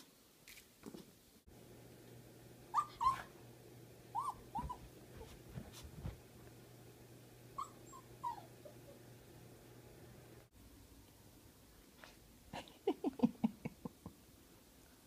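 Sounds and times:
small dog whimpering: 2.7 - 3.3, 4.1 - 5.4, 7.5 - 9.0.

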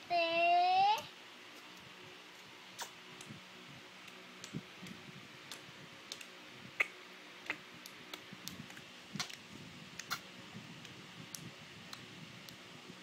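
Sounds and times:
baby mouth clicks and smacks: 1.6 - 3.4, 4.0 - 10.2, 10.8 - 12.6.

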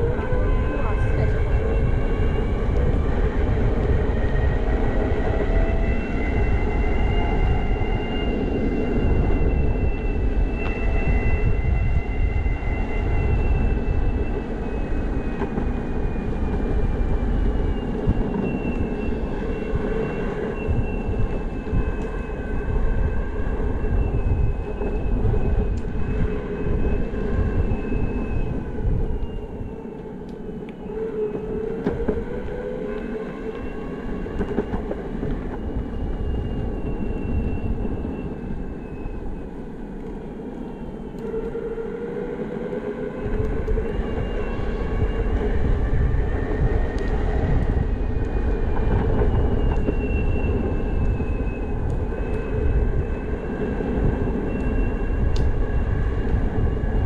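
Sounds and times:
wind: 0.0 - 57.0
wheels rumbling on pavement: 43.2 - 57.0.

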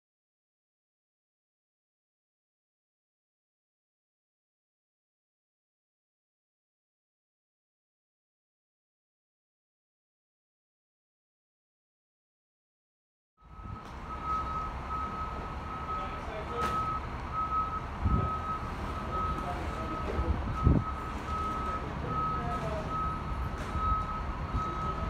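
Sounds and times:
diesel engine rumble: 13.4 - 25.0
repeating warning beep: 13.4 - 25.0.

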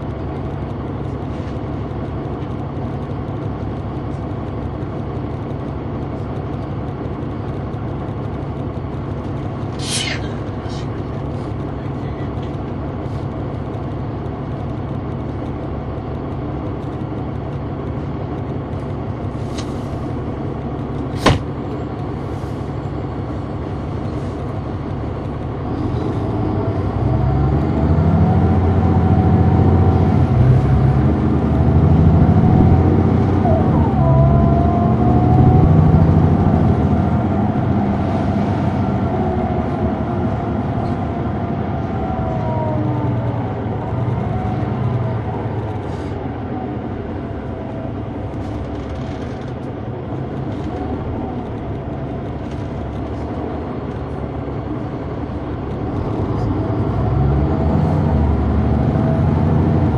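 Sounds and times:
bus engine and transmission: 0.0 - 59.9
sharp knock: 21.2 - 21.5
rising and falling howl: 26.2 - 48.3.

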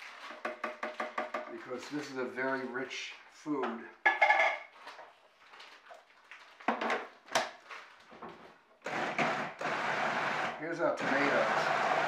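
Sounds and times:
food processor motor running: 8.9 - 12.0.

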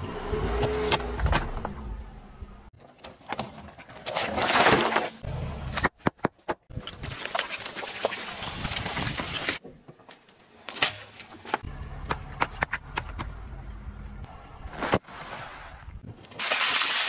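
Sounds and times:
low tyre rumble on asphalt: 11.4 - 16.3.

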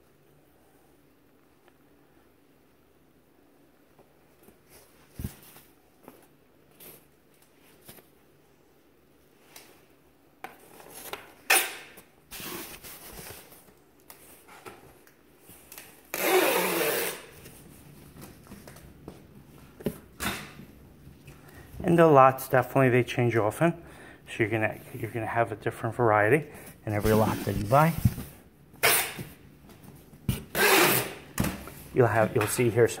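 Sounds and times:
fabric rustling: 26.9 - 28.4.

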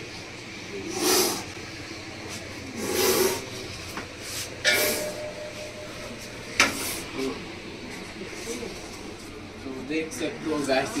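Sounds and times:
snake hissing: 0.9 - 1.5, 2.8 - 3.4.

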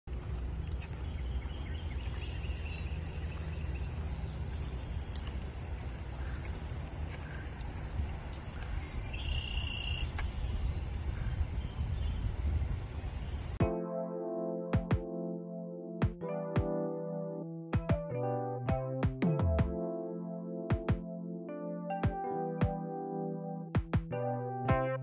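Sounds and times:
birds calling: 0.6 - 12.3.

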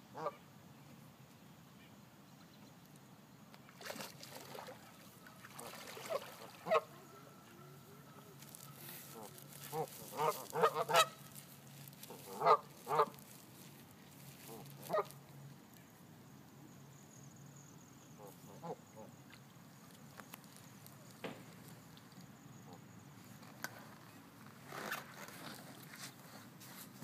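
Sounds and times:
geese honking: 6.1 - 11.3, 12.2 - 13.2.

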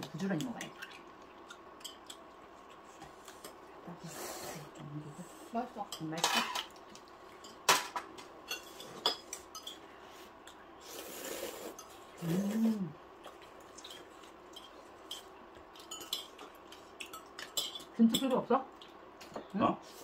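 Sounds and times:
person humming: 12.2 - 13.0.

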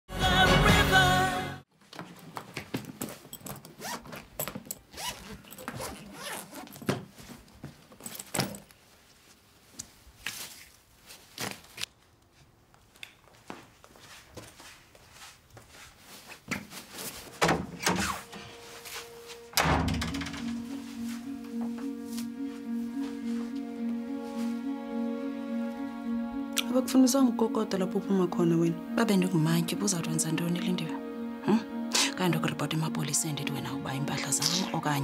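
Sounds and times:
clothes rustling: 1.8 - 19.6, 20.4 - 24.8
zipper runs: 2.8 - 7.4.

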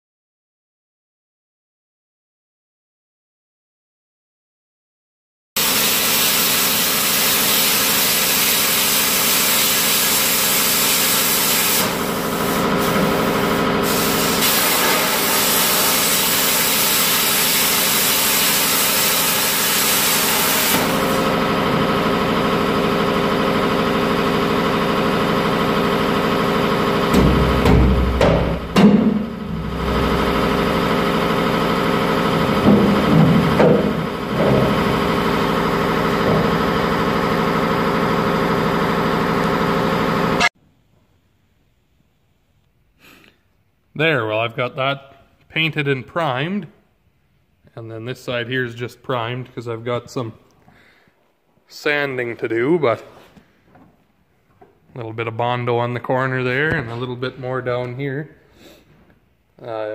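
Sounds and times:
plasma cutter hissing: 5.6 - 21.4
engine idling: 20.8 - 40.4
loud knocks: 27.1 - 30.2, 32.5 - 35.2, 36.2 - 36.9.

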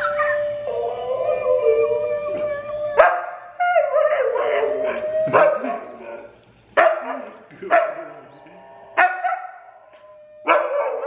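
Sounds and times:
dog howling: 0.0 - 6.4, 8.2 - 11.0
dog barking: 6.8 - 8.1, 9.0 - 9.6, 10.5 - 11.0.

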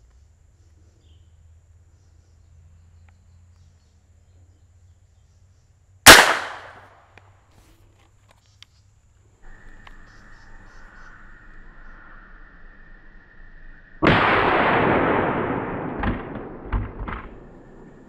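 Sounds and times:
rifle shot with echo: 6.1 - 6.9, 14.0 - 18.0.

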